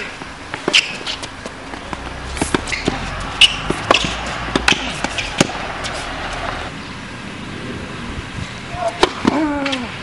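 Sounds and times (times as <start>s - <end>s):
tennis balls struck by rackets: 0.0s - 6.7s, 8.8s - 9.5s
balls bouncing on hard court: 0.2s - 6.7s.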